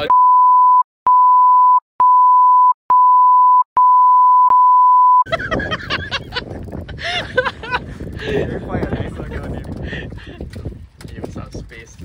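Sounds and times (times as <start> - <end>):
censor bleep tone: 0.0 - 5.3
wind noise: 5.3 - 12.0.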